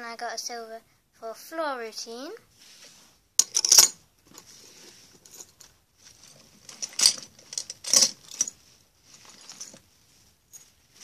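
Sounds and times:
metal medals clinking together: 3.4 - 4.0, 5.2 - 8.6.

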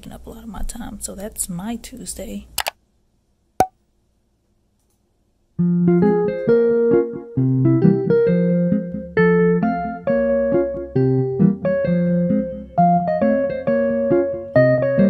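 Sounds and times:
keyboard music: 5.6 - 15.0.

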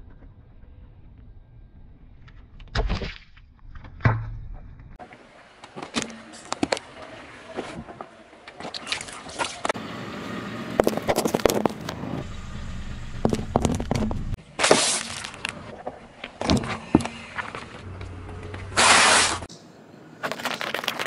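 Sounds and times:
car tyres rolling on asphalt: 9.6 - 14.4, 15.1 - 19.4
objects cracking and crunching: 10.8 - 12.0, 20.2 - 21.0.

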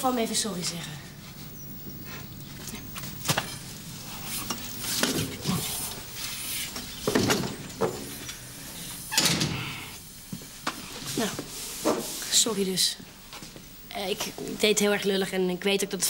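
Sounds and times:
wheelchair rustling and clatter: 0.4 - 8.5
door pushed shut: 9.1 - 9.8.

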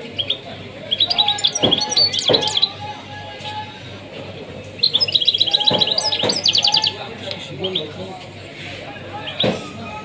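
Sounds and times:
songbird twittering song: 0.0 - 2.8, 4.8 - 8.0.

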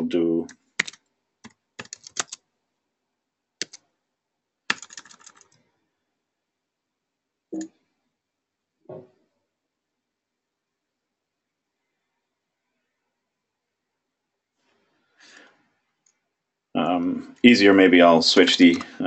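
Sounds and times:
keyboard typing: 0.4 - 2.4, 3.6 - 3.9, 4.7 - 5.6.

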